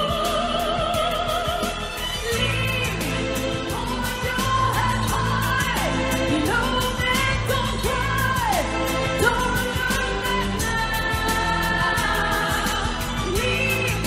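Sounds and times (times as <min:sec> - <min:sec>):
percussion beat: 0:00.0 - 0:14.0
woman singing: 0:00.0 - 0:14.0.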